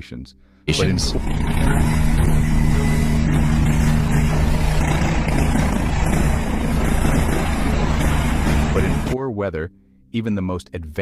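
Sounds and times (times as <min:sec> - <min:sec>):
helicopter hovering: 0:00.7 - 0:09.2.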